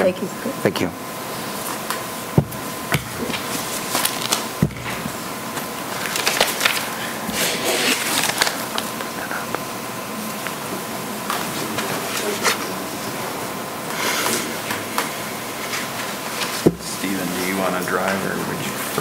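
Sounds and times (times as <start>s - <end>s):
papers rustling: 1.6s - 9.6s, 11.2s - 13.0s, 14.2s - 18.4s.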